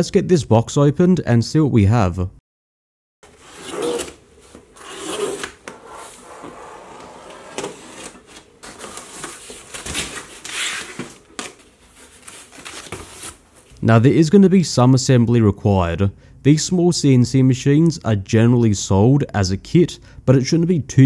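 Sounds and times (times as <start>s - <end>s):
knife slitting packing tape: 3.3s - 4.2s, 4.8s - 6.3s
cardboard flaps scraping and rustling: 3.3s - 13.7s.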